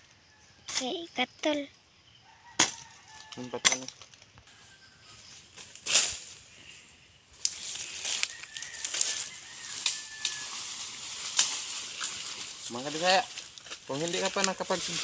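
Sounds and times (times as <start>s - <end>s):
leaves and brush rustling: 2.3s - 15.0s
twigs snapping: 2.6s - 4.4s, 5.6s - 6.3s, 7.4s - 15.0s.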